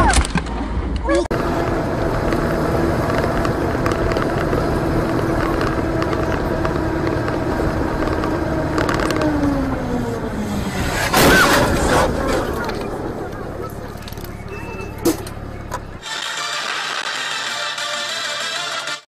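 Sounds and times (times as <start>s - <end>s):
vehicle engine running: 1.3s - 16.0s.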